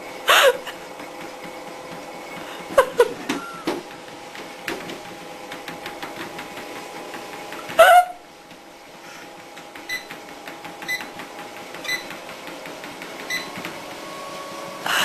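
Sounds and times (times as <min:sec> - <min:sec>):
treadmill motor whine: 0:00.0 - 0:15.0
knocks and squeaks on belt: 0:11.8 - 0:12.2, 0:13.2 - 0:13.6.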